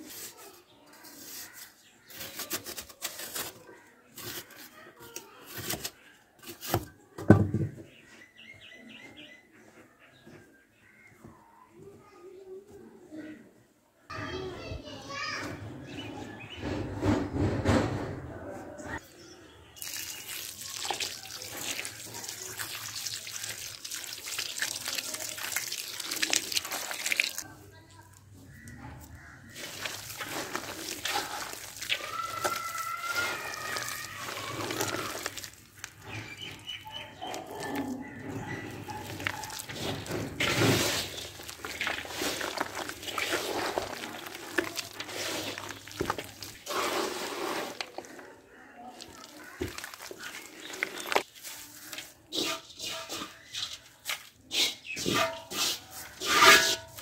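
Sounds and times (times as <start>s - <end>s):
soil crackling: 0.0s - 6.8s, 19.7s - 57.0s
water pouring onto soil: 19.8s - 27.6s, 29.5s - 48.3s, 48.9s - 57.0s
wet mud squelching: 19.8s - 27.6s, 28.3s - 57.0s.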